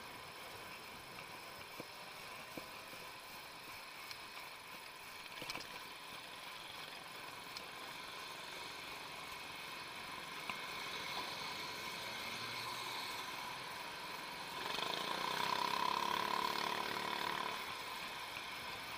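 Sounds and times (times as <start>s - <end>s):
faint steady whine: 0.0s - 18.9s
road noise: 0.0s - 18.9s.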